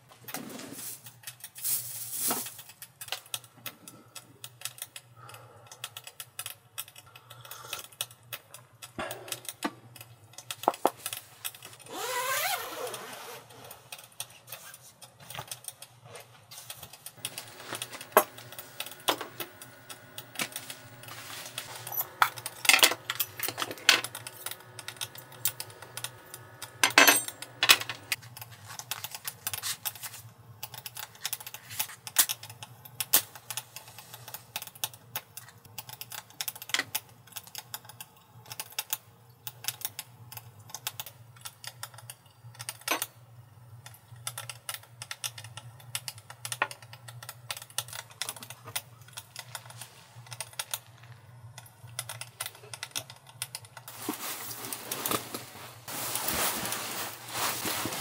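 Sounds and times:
steady low hum: 0:16.8 - 0:30.9.

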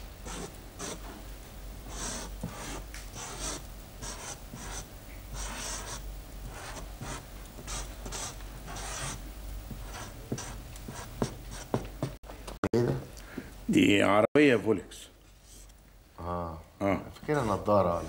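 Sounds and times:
marker scratching on paper: 0:00.2 - 0:01.1, 0:01.9 - 0:09.2, 0:09.8 - 0:12.2.

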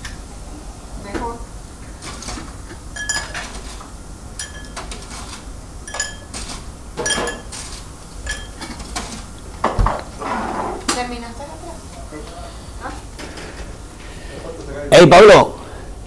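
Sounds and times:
dishes and cutlery clinking: 0:02.0 - 0:10.1.

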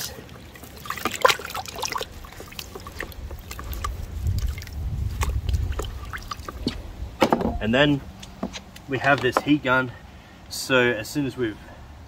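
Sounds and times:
knife swished in water bucket: 0:00.0 - 0:06.8
water splashing: 0:00.0 - 0:07.0.

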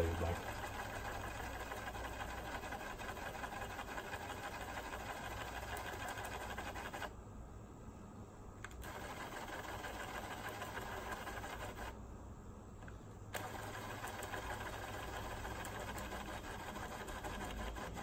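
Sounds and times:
cassette deck whirring: 0:00.0 - 0:07.1, 0:08.6 - 0:12.0, 0:12.7 - 0:18.0.

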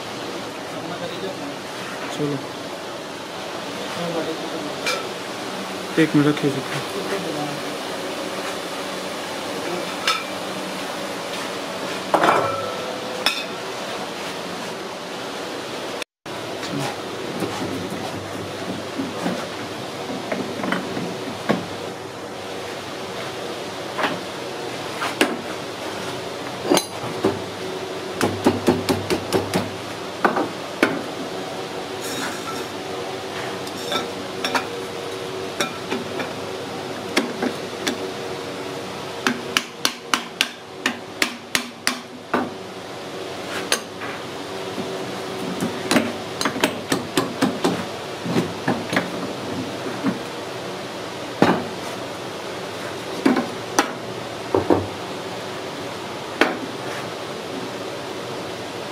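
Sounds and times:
hammer tapping on metal: 0:39.2 - 0:42.1.

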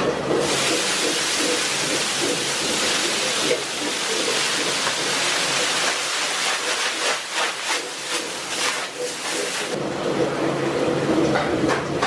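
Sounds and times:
low kitchen noise: 0:00.0 - 0:12.0
water sizzling on hot griddle: 0:00.4 - 0:09.8
broom scrubbing: 0:02.4 - 0:09.8.

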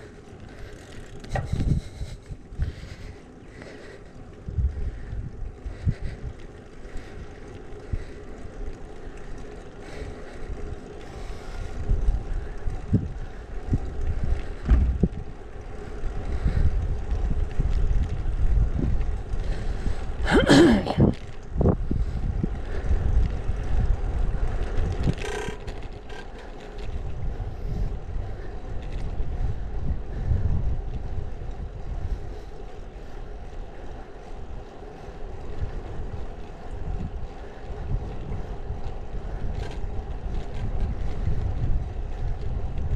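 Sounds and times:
wind buffeting microphone: 0:00.0 - 0:42.9.

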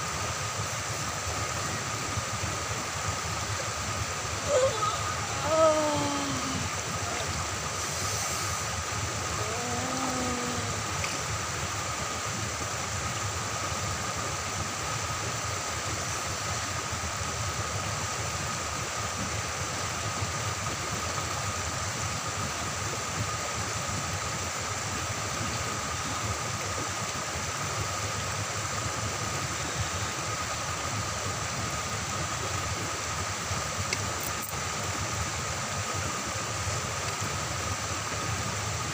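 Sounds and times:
river water pouring over weir: 0:00.0 - 0:38.9
man crying out: 0:04.4 - 0:06.8.

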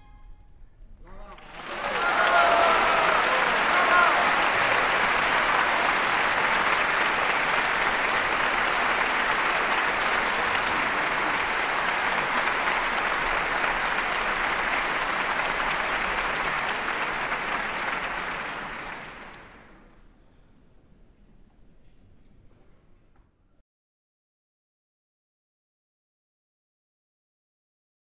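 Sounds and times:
crowd applauding: 0:01.1 - 0:20.0.

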